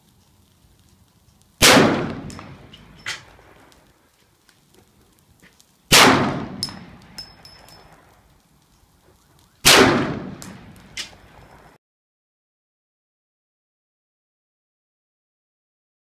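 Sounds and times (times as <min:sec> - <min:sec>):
gunshots with echo: 0:01.6 - 0:02.7, 0:05.9 - 0:07.0, 0:09.6 - 0:10.8.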